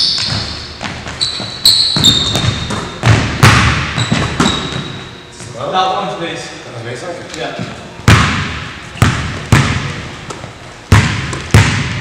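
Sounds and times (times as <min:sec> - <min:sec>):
sneaker squeaks: 0:00.0 - 0:05.6
basketball bouncing on hardwood: 0:00.2 - 0:04.9, 0:08.1 - 0:12.0.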